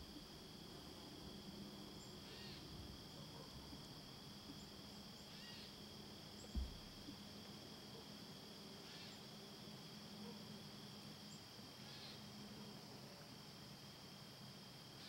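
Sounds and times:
insects chirring: 0.0s - 15.0s
dull thump: 6.4s - 7.2s.

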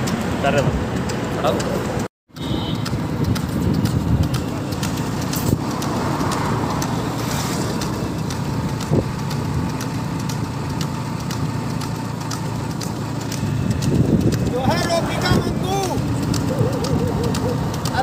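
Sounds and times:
vehicle and road noise: 0.0s - 18.0s
wind on microphone: 13.8s - 15.6s.

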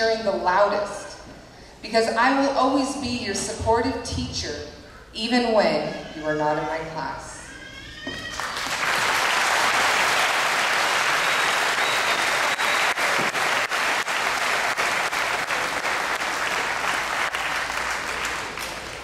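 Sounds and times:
audience applauding: 8.2s - 19.0s.

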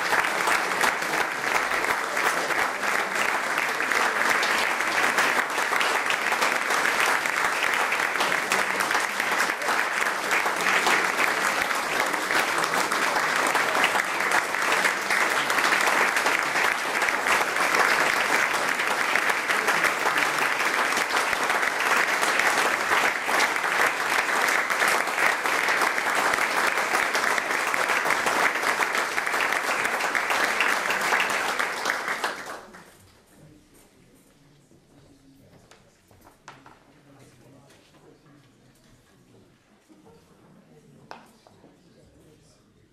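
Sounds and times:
audience applause: 0.0s - 32.9s.

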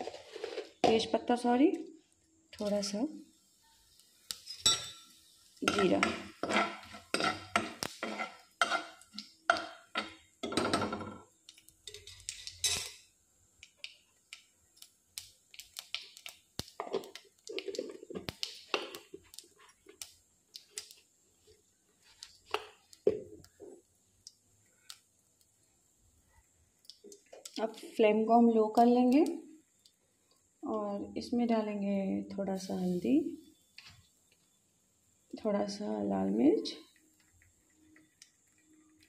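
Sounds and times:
ladle clinking and scraping pan: 5.7s - 10.2s.

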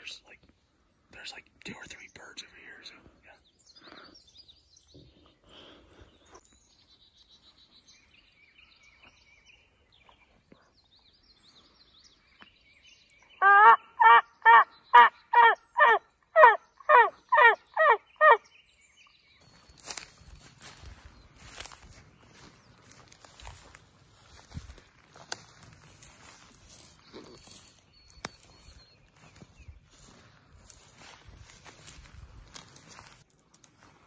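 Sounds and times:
faint songbird chirps: 0.0s - 33.3s
turkey call yelps: 13.4s - 18.4s.

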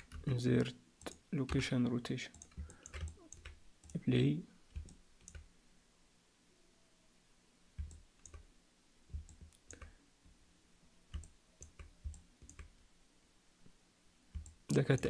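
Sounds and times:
computer mouse clicks: 0.0s - 1.6s, 2.3s - 4.0s, 4.7s - 5.5s, 7.8s - 8.5s, 9.1s - 10.0s, 11.1s - 12.7s, 14.3s - 15.0s.

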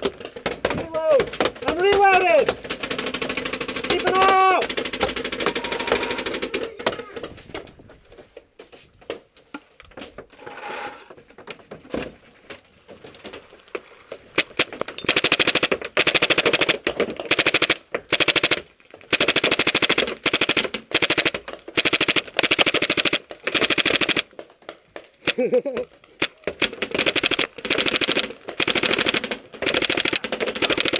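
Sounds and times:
paintball machine gun firing bursts: 0.0s - 6.7s, 14.4s - 24.4s, 26.2s - 30.9s
paintballs clicking: 13.3s - 30.9s.

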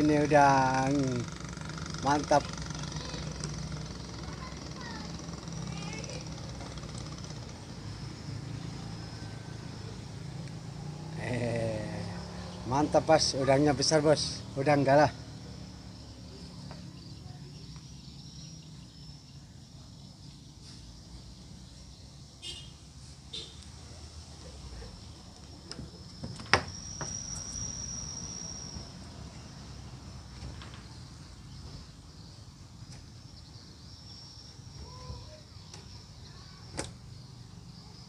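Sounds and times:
high-pitched insect drone: 0.0s - 38.0s
sharp chirp: 26.6s - 29.6s.

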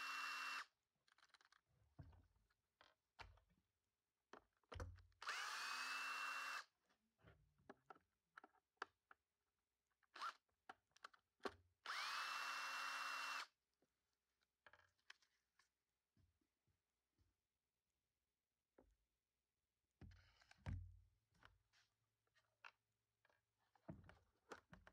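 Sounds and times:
cordless drill whining: 0.0s - 0.7s, 5.2s - 6.7s, 10.2s - 10.4s, 11.8s - 13.5s.

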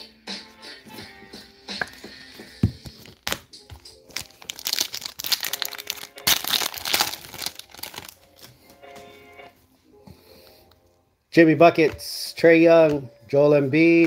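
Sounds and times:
wrapper crinkling and tearing: 4.1s - 8.5s.

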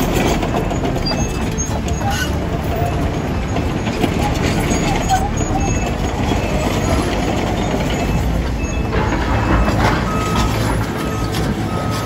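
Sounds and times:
excavator diesel engine: 0.0s - 12.0s
steel tracks moving: 0.0s - 12.0s
reversing alarm beeping: 2.8s - 12.0s.

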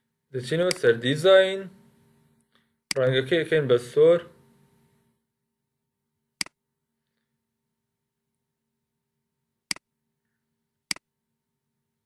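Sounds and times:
faint electrical hum: 0.0s - 5.3s.

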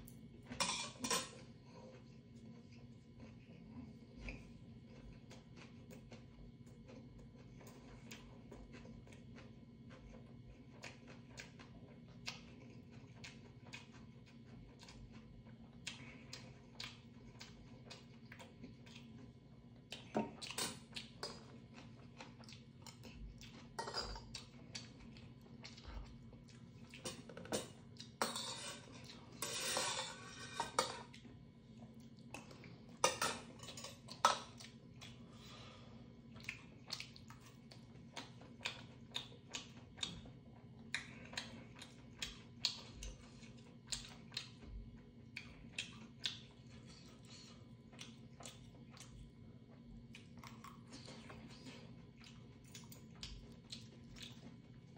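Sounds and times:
utensils clinking on steel bowls: 0.6s - 1.4s, 27.1s - 31.0s, 33.0s - 34.5s
chewing and slurping: 1.3s - 54.9s.

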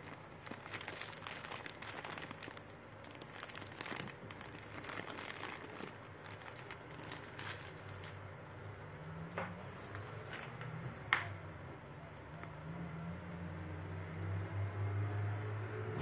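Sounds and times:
packaging crinkling: 0.0s - 8.2s.

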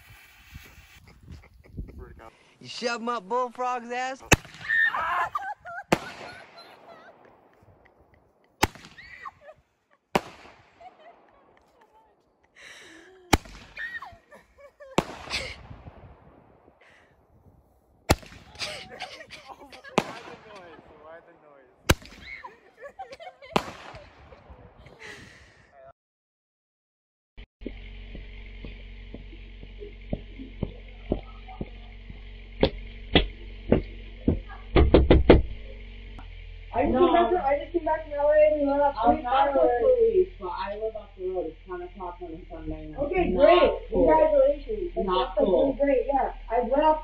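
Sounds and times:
firecracker bangs: 4.3s - 4.8s, 5.9s - 7.6s, 8.6s - 9.2s, 10.2s - 10.9s, 13.3s - 13.9s, 15.0s - 16.4s, 18.1s - 18.8s, 19.7s - 21.1s, 21.8s - 22.4s, 23.5s - 24.5s
footsteps approaching: 27.6s - 36.2s
microphone hiss and hum: 27.8s - 47.0s.

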